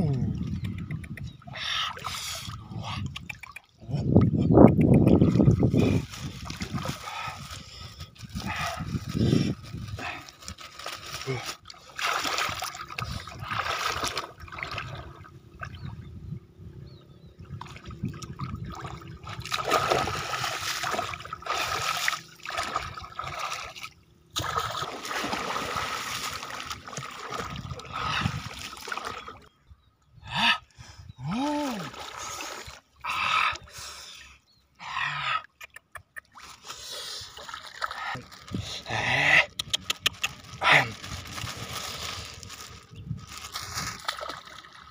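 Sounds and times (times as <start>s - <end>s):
muddy water splashing: 5.0s - 16.1s, 17.4s - 29.6s, 31.2s - 34.0s, 36.2s - 44.9s.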